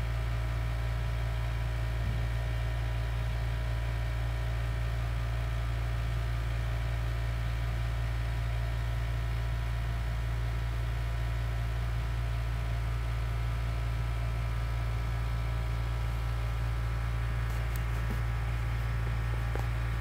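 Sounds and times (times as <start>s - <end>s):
low electrical hum: 13.7s - 20.0s.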